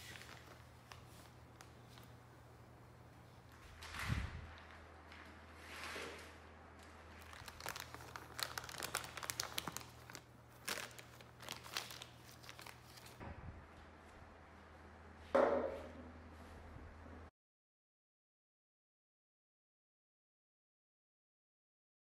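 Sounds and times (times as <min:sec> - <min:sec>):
plastic sheeting crinkling: 0:00.0 - 0:02.3, 0:03.4 - 0:13.2
steady low hum: 0:07.8 - 0:17.3.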